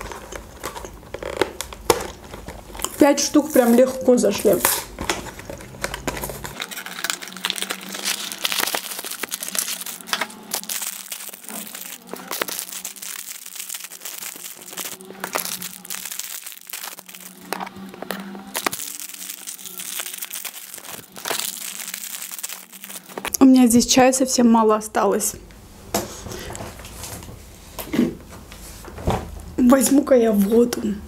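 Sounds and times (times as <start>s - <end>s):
plastic wrappers crinkling and tearing: 0.0s - 23.4s.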